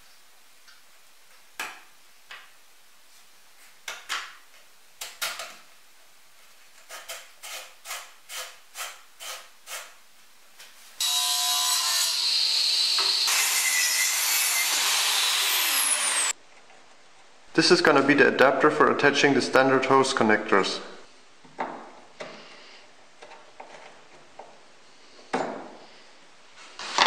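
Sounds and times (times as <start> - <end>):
miter saw cutting wood: 11.0 - 16.4.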